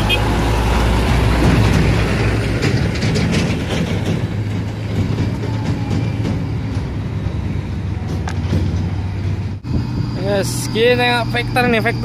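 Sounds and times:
diesel truck engine rumbling: 0.0 - 12.0
rattling knocks: 1.0 - 9.6.

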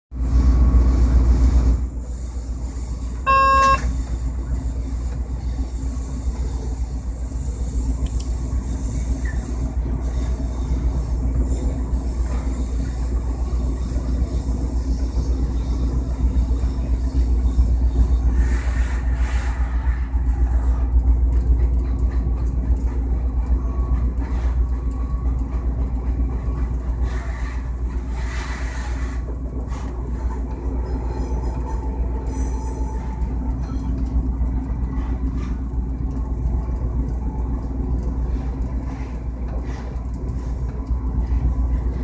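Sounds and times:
train cab rumble and hum: 0.1 - 42.0
short pitched tone: 3.3 - 3.9.

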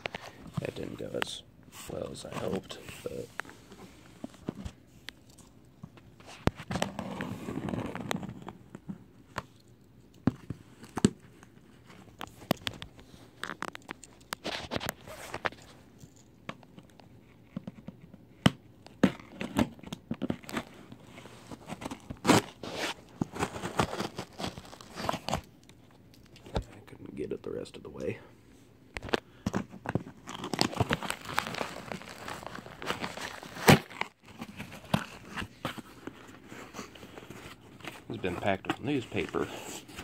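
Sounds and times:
sharp cracks and scrapes: 9.3 - 26.8, 29.0 - 40.0
cardboard box tearing open: 21.6 - 25.4, 30.3 - 35.9.

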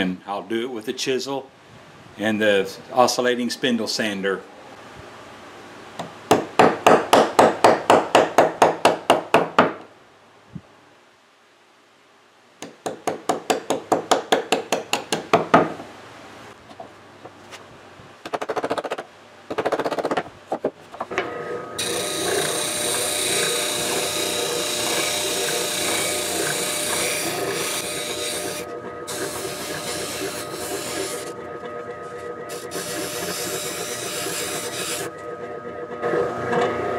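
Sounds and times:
spindle sander humming: 21.1 - 36.9
board being sanded hiss: 21.8 - 31.3, 32.5 - 35.1
wood chisel scraping strokes: 21.8 - 35.1.

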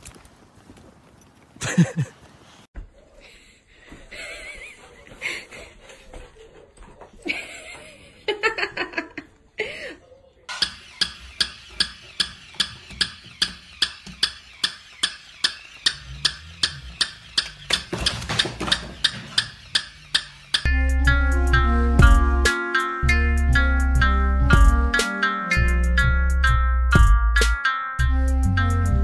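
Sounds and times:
toy dog motor clicking: 10.5 - 18.0, 18.6 - 20.7.

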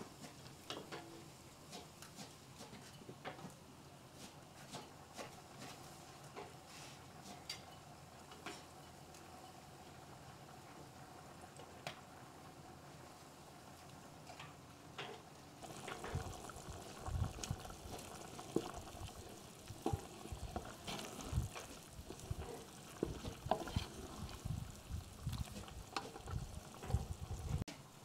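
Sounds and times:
spatula stirring soup in pot: 1.6 - 2.9, 15.6 - 27.6
liquid sloshing: 15.6 - 27.6.

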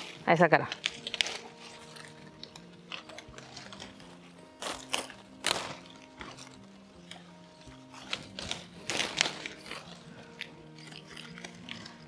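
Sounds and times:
soft background music: 0.0 - 12.0
leaves rustling and crackling: 8.0 - 9.9.

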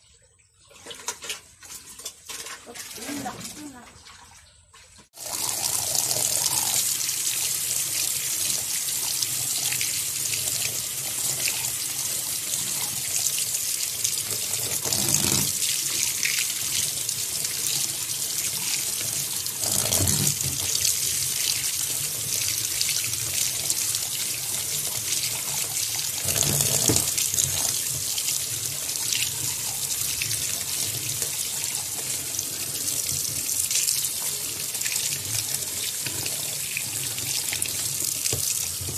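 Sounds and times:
water splashing over eggs: 0.6 - 5.4
tap running into sink: 26.2 - 27.8, 38.2 - 38.9.

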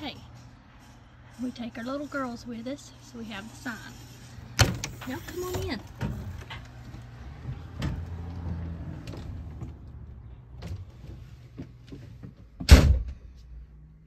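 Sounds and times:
door shutting bang: 12.6 - 13.2.

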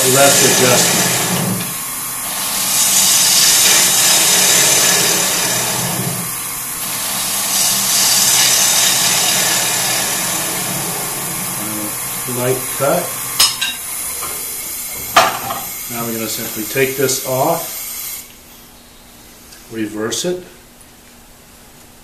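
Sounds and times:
gouge cutting spinning wood: 0.0 - 13.4
lathe humming: 0.0 - 17.8.

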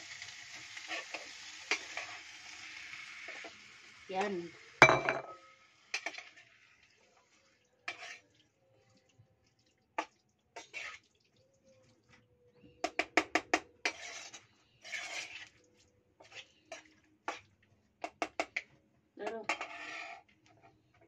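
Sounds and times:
spoon scraping and knocking a pot: 4.8 - 6.4, 7.9 - 8.2, 12.8 - 15.5, 16.2 - 18.7, 19.4 - 20.6.

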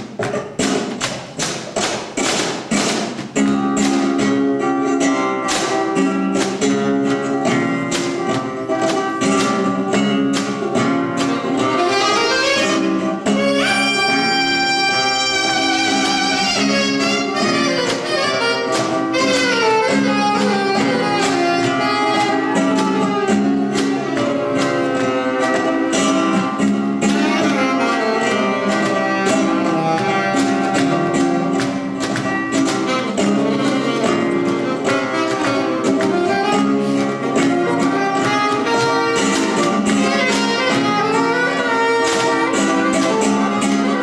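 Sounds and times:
cajon beats: 0.0 - 44.0
flamenco guitar: 0.0 - 44.0
saxophone melody: 11.2 - 26.4, 27.0 - 44.0.

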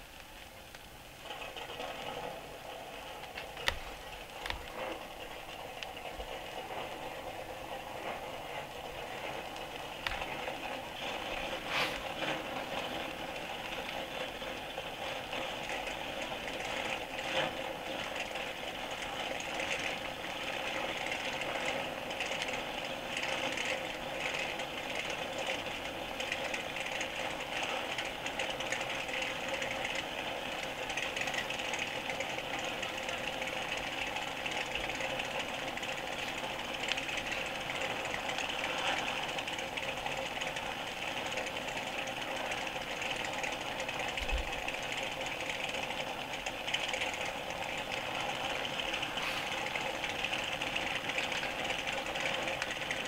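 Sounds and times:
racing car engines drone: 1.2 - 53.0
vinyl record clicks: 3.2 - 4.8.

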